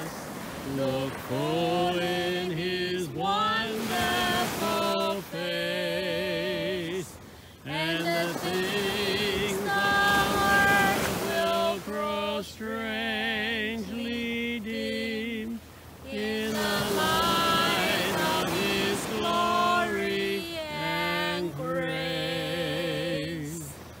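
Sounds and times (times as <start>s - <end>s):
woman singing a hymn unaccompanied: 0.0s - 24.0s
singer breathing: 7.2s - 7.6s.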